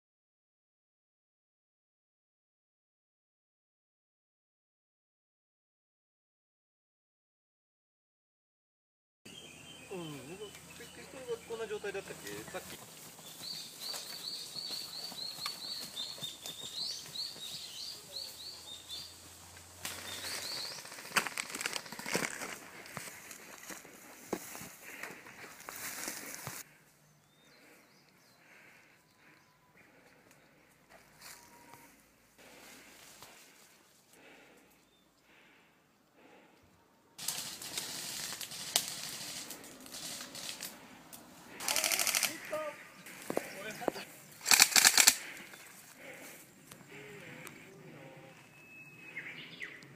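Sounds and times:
bird chirping rapidly: 13.2 - 19.2, 20.0 - 21.0
leaves rustling and twigs snapping: 19.5 - 26.6, 37.2 - 42.5, 44.4 - 45.9.

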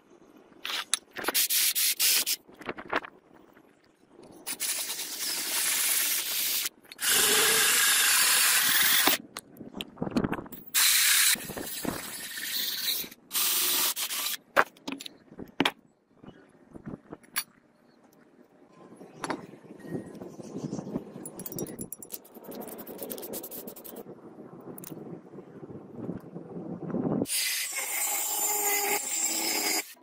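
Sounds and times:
metal clicks and clinks: 21.2 - 23.2
hole saw cutting steel hissing: 27.3 - 30.0.

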